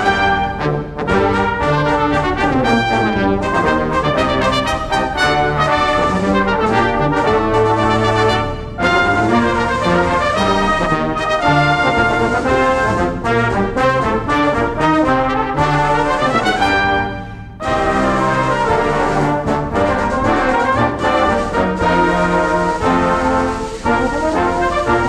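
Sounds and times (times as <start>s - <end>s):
brass band playing a march: 0.0s - 25.0s.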